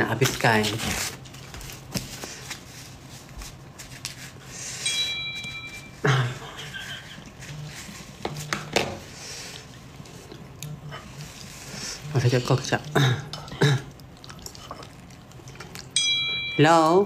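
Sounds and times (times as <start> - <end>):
person eating noodles: 9.0 - 16.0.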